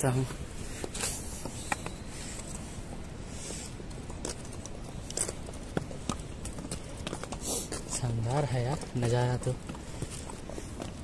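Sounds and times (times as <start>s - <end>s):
hooves knocking on rock: 4.0s - 11.0s.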